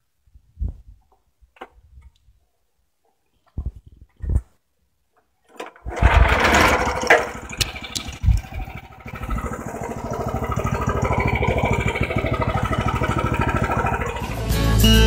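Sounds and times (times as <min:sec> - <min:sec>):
bandsaw mill sawing timber: 0:05.9 - 0:14.8.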